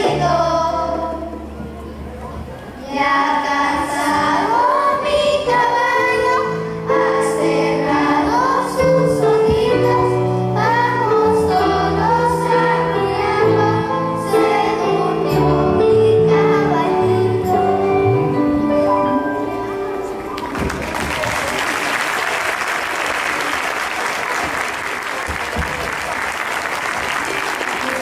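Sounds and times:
children's choir singing: 0.0s - 1.8s, 2.8s - 20.8s
instrumental accompaniment: 0.0s - 20.8s.

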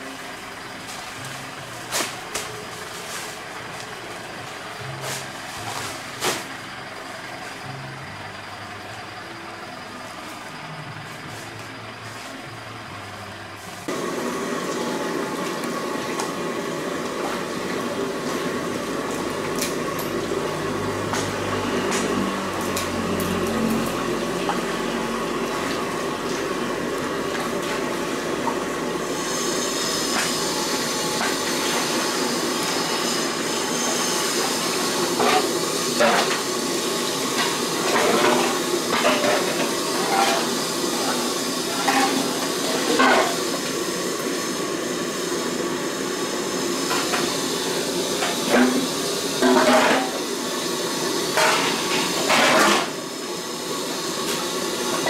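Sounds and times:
kitchen din: 37.4s - 43.5s, 48.2s - 50.3s, 51.3s - 52.9s.

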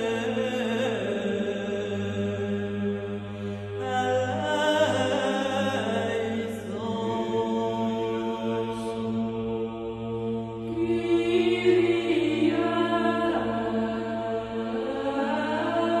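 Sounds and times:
chant-like vocal tones: 0.0s - 16.0s.

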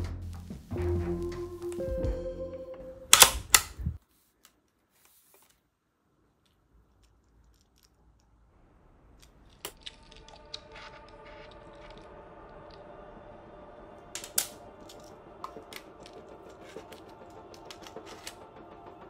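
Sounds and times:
air rifle action clicking: 3.1s - 3.9s, 14.2s - 16.2s, 16.9s - 18.4s
faint background music: 9.8s - 19.0s.

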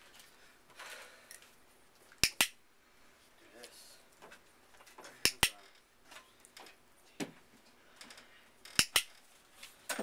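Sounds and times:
dog-training clicker clicking: 2.2s - 2.6s.

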